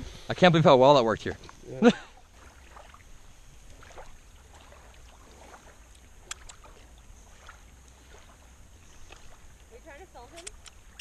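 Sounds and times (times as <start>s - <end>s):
sharp click: 6.2s - 6.6s, 10.3s - 11.0s.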